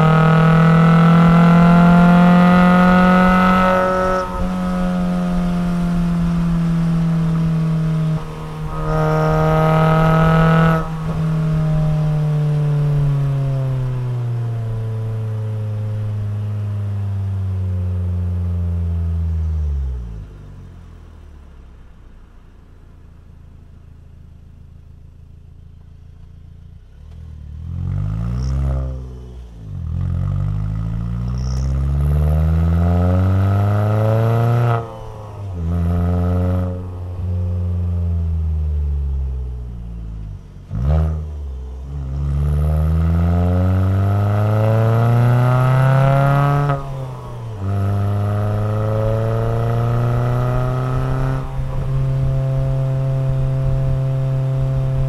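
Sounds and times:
car engine revving while driving: 0:00.0 - 0:21.0, 0:26.7 - 0:55.0.

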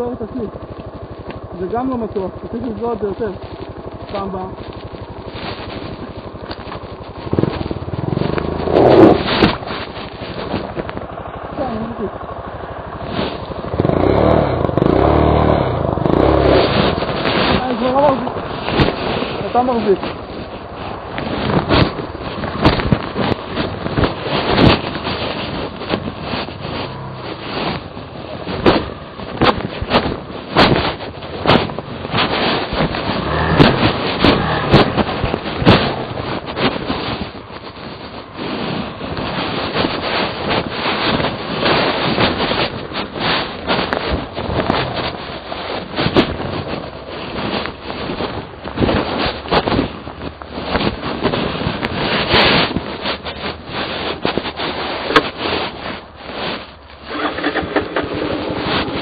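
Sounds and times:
motorcycle engine rumble: 0:00.0 - 0:59.0
wind buffeting microphone: 0:00.0 - 0:59.0
knocks and thuds from bumps: 0:16.5 - 0:37.9.

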